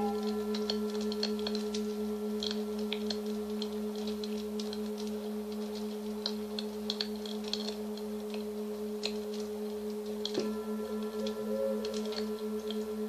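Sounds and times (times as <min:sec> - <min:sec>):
singing bowl ringing: 0:00.0 - 0:02.4, 0:10.4 - 0:13.0
wood fire crackling: 0:00.0 - 0:13.0.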